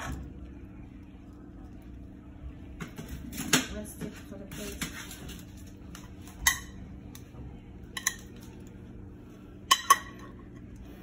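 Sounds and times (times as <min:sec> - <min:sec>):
faint steady hum: 0:00.0 - 0:03.2
metal tongs clinking on pot: 0:07.9 - 0:08.7.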